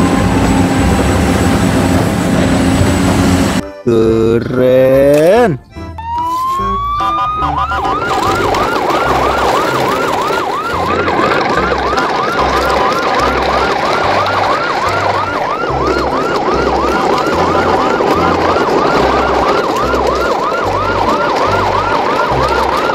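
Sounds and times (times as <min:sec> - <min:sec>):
deep bass notes: 0:00.0 - 0:22.9
electronic siren yelping: 0:05.9 - 0:22.9.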